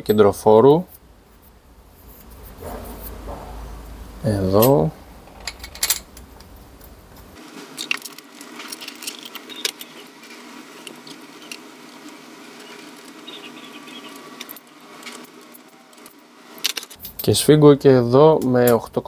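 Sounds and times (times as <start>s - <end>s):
metallic clicks of tools and bolts: 4.6s - 6.6s.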